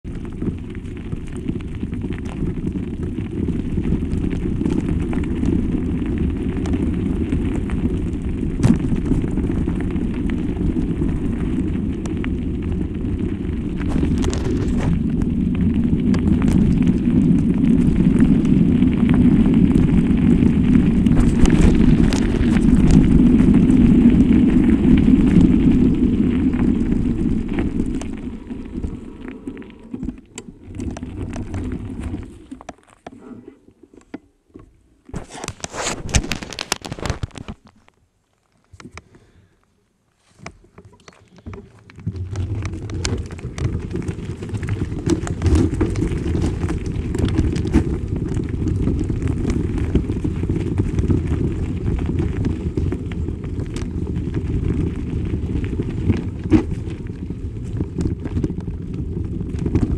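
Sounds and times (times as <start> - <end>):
wind rumble on microphone: 0.0 - 32.7, 41.3 - 59.9.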